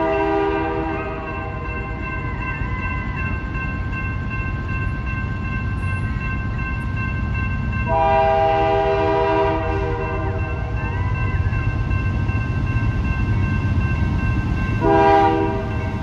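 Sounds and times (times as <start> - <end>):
locomotive air horn: 0.0 - 1.3, 7.9 - 10.5, 14.8 - 15.6
railroad crossing bell ringing: 0.0 - 16.0.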